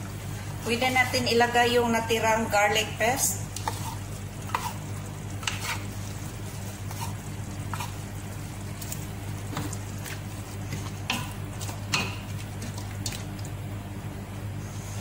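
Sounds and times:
stew squelching as stirred: 3.4s - 13.6s.

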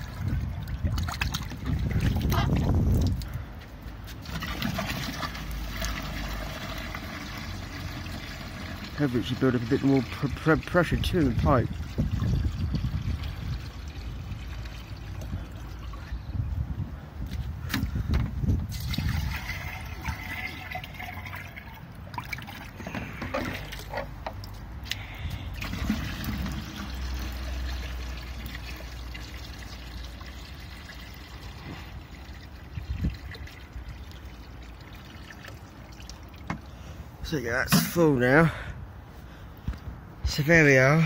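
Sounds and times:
water pouring into a sink: 4.3s - 10.7s, 18.7s - 22.6s, 25.6s - 36.4s.

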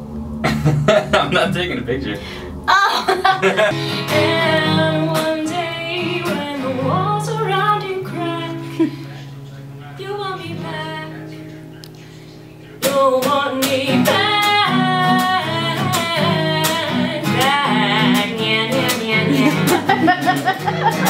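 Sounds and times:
strummed acoustic guitar: 0.0s - 21.0s
woman singing: 2.7s - 9.1s, 10.0s - 11.2s, 12.8s - 21.0s.

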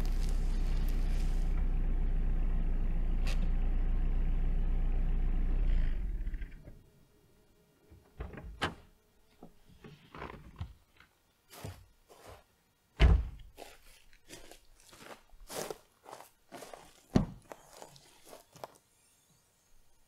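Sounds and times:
footsteps on gravel: 0.0s - 1.5s, 13.5s - 18.8s.

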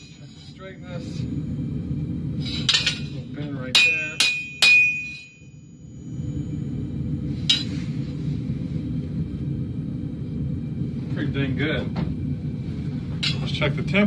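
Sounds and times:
steady low rumble: 0.0s - 14.0s
hammer striking steel on anvil: 2.6s - 5.8s, 7.5s - 7.8s, 13.2s - 13.5s.

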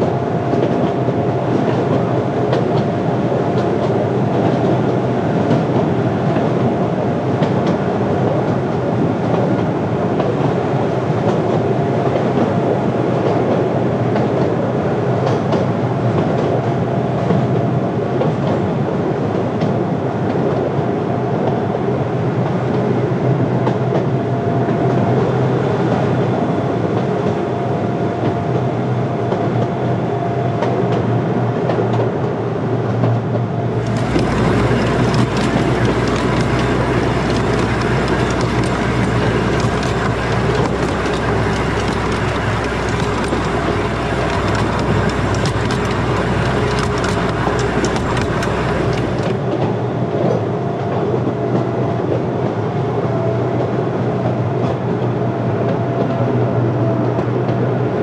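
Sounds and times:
miniature train running on track: 33.0s - 58.0s
low rumble: 33.7s - 49.7s.

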